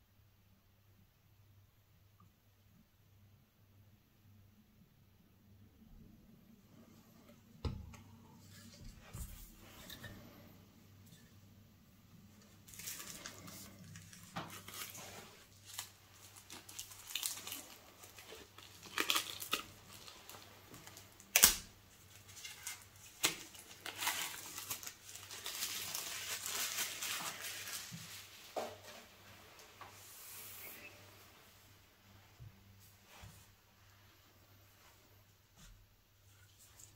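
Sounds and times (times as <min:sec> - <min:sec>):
plastic wrapping crinkling and tearing: 0:12.4 - 0:29.0.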